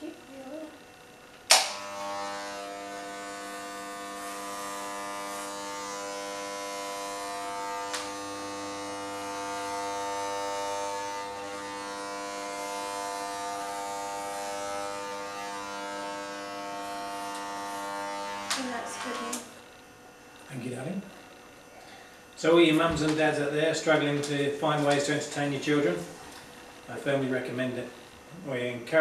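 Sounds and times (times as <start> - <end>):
electric hair clippers buzzing: 0.0 - 29.0.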